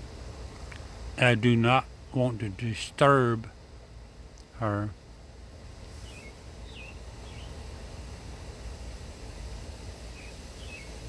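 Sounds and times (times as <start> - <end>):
bird chirps: 6.0 - 7.6, 10.2 - 11.0.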